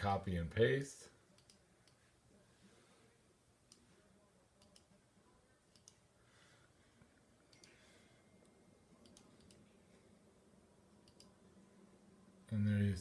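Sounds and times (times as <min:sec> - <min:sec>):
computer mouse clicks: 0:01.4 - 0:02.0, 0:04.6 - 0:04.9, 0:05.7 - 0:06.0, 0:07.5 - 0:07.8, 0:09.0 - 0:09.6, 0:11.0 - 0:11.4.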